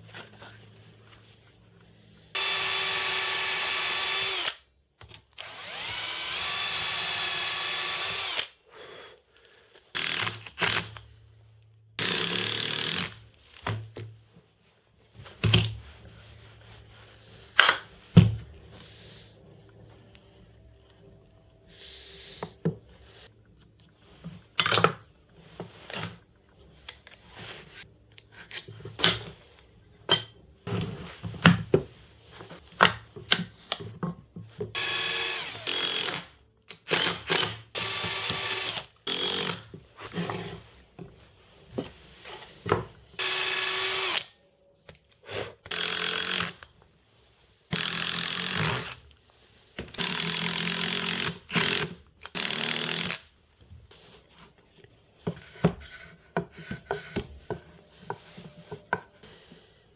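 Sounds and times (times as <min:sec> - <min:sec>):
cordless drill driving screws: 0:02.4 - 0:04.6, 0:05.4 - 0:08.5, 0:10.0 - 0:11.0, 0:12.0 - 0:13.2, 0:34.8 - 0:36.3, 0:36.9 - 0:39.7, 0:43.2 - 0:44.3, 0:45.6 - 0:46.7, 0:47.7 - 0:49.0, 0:50.0 - 0:53.2.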